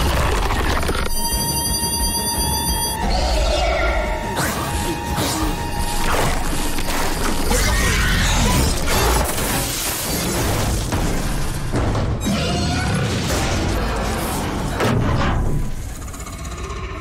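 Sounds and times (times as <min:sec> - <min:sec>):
tense horror film score: 0:00.0 - 0:17.0
crashes and bangs: 0:08.3 - 0:16.0.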